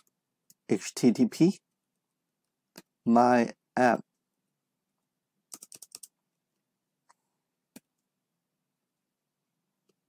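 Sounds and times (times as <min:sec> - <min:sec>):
keyboard keys typing: 0:05.5 - 0:06.2.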